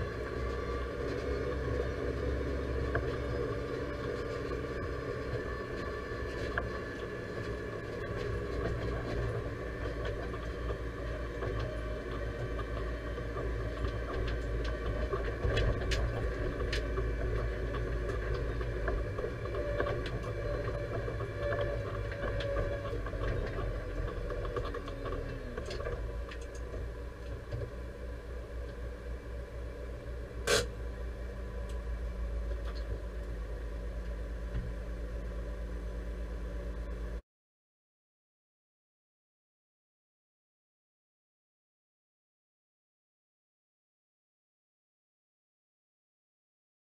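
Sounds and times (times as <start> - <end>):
tractor engine running: 0.0 - 37.2
rattles and clicks: 5.7 - 27.7.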